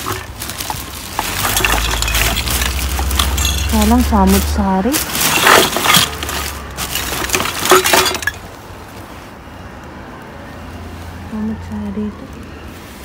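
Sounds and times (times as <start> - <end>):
glass jars clinking in bag: 0.0 - 8.5.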